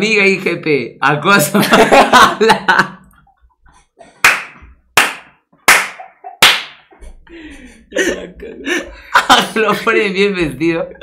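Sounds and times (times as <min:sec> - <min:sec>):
sharp hand claps: 0:04.2 - 0:06.9.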